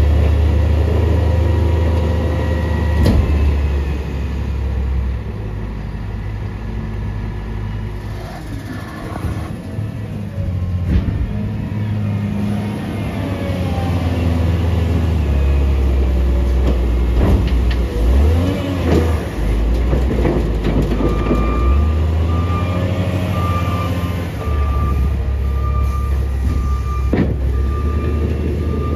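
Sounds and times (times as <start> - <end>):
loader diesel engine under load: 0.0 - 28.9
reversing alarm beeping: 21.0 - 28.9.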